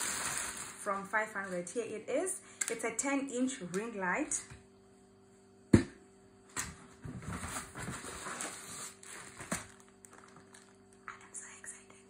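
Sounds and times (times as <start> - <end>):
box in plastic wrapping rustling: 0.0 - 0.9, 7.2 - 11.0.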